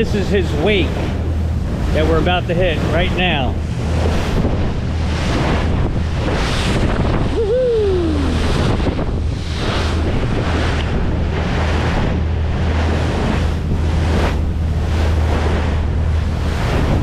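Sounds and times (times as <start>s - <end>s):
boat engine drone: 0.0s - 17.0s
water splashing against hull: 0.0s - 17.0s
wind buffeting microphone: 0.0s - 17.0s
short falling cry: 7.3s - 8.4s.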